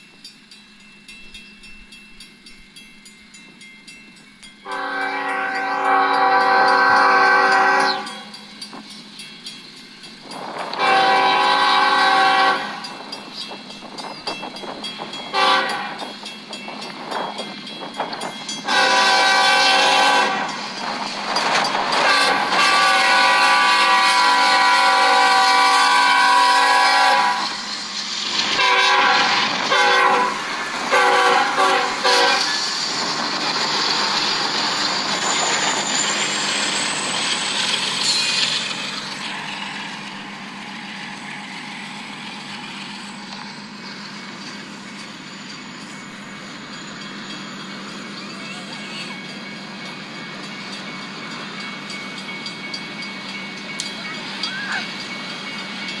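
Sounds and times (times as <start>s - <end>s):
train rumbling: 0.0s - 56.0s
locomotive air horn blasts: 4.7s - 8.3s, 10.8s - 12.8s, 15.3s - 16.0s, 18.7s - 20.5s, 22.0s - 27.6s, 28.6s - 32.5s.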